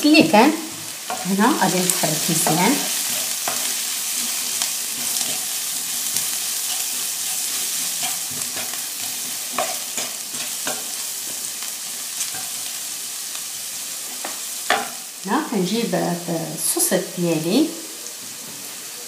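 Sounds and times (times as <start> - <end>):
onions sizzling in a frying pan: 0.0 - 19.0
wooden spoon knocking and scraping pan: 0.2 - 11.6, 14.2 - 15.0.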